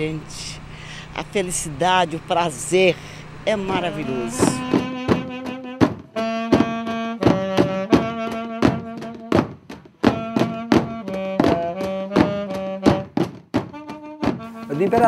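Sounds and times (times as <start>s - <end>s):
melody over low drone: 0.2s - 7.2s
bass drum beating: 3.4s - 15.0s
snare drum beating: 3.7s - 15.0s.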